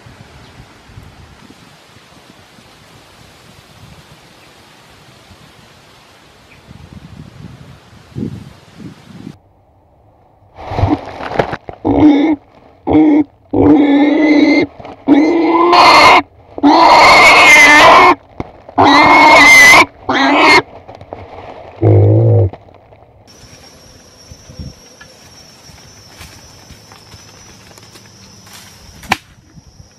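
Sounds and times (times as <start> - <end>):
pig squealing: 11.9 - 18.2, 18.8 - 20.6.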